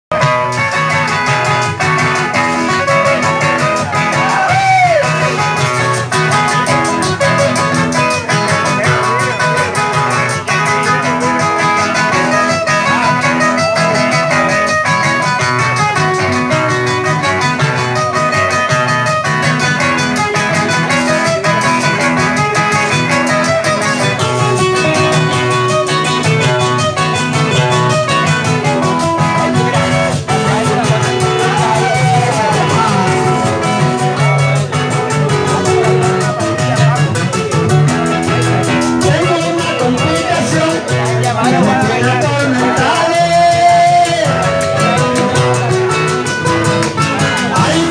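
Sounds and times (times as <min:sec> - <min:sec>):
acoustic guitars playing: 0:00.1 - 0:47.9.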